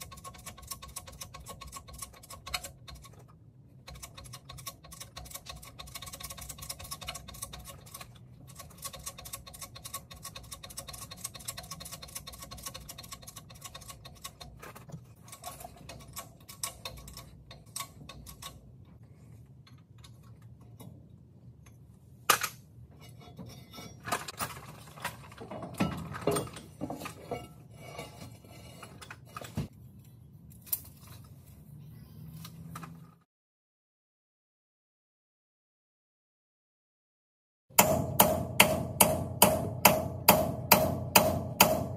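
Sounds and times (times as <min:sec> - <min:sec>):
metal clanks and knocks: 0:21.7 - 0:29.7.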